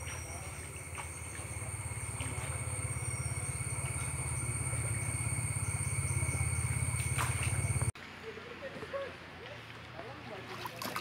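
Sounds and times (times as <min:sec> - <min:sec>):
steady high-pitched tones: 0:00.0 - 0:08.0
low rapidly pulsing rumble: 0:00.4 - 0:08.0.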